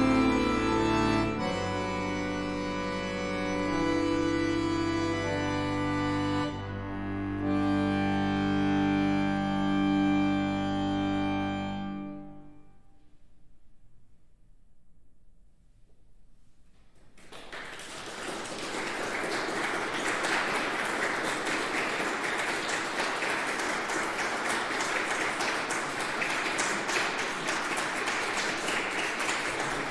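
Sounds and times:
audience applause: 17.0 - 29.9.

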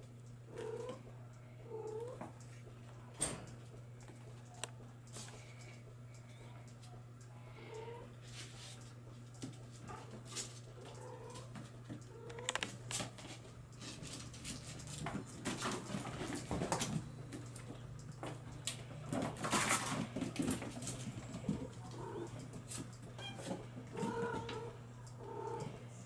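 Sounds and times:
steady low hum: 0.0 - 26.0
kittens mewing: 21.3 - 22.4, 23.9 - 25.8.

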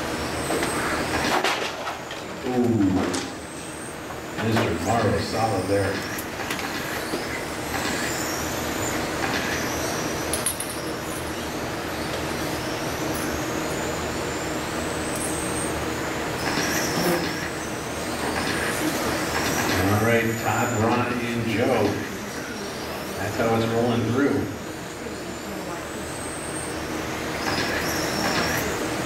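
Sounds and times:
rc car motors whining: 2.6 - 29.0.

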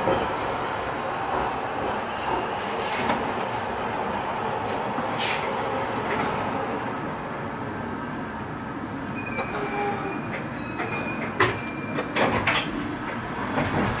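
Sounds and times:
train wheels rumbling: 0.0 - 14.0
brief squealing tones: 9.1 - 12.0.

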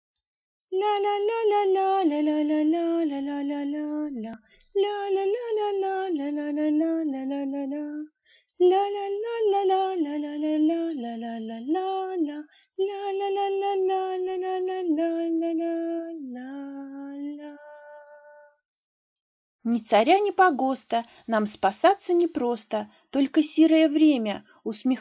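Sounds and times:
woman singing slow melody: 0.7 - 18.6.

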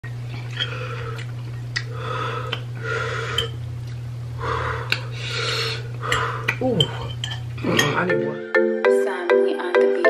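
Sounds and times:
steady low hum: 0.0 - 8.5
hissy eating mouth sounds: 0.3 - 8.0
forks clinking on ceramic bowls: 6.1 - 8.2.

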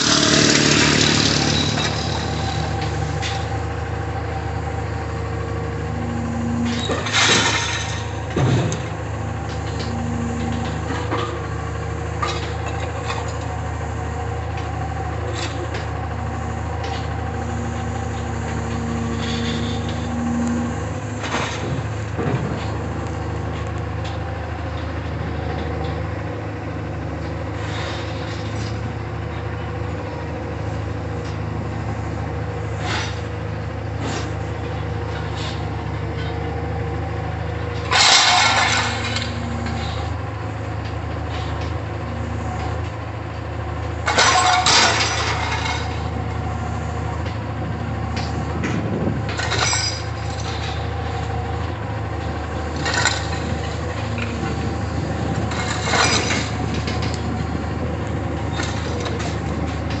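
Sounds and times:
scrap metal crashing: 0.0 - 3.5, 6.0 - 8.9, 37.8 - 40.1, 44.0 - 46.1, 49.3 - 50.8, 55.2 - 57.2
metal clanks: 0.0 - 3.6, 6.6 - 11.5, 37.7 - 40.1, 44.0 - 46.1, 48.1 - 51.8, 52.7 - 57.4
diesel engine running: 0.0 - 60.0.

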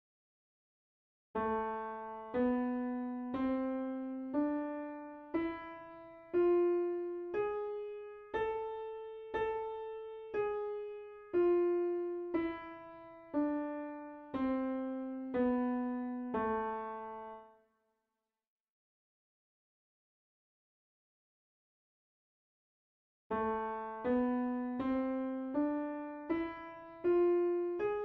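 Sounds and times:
piano playing slow scale: 1.4 - 17.6, 23.3 - 28.0.

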